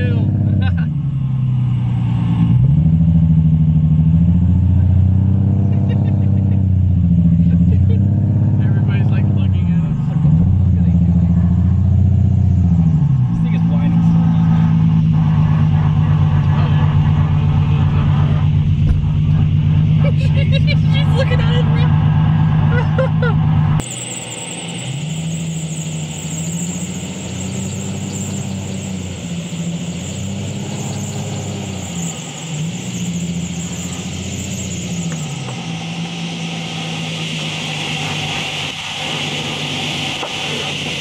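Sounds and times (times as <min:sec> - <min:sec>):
car engine revving: 0:00.0 - 0:41.0.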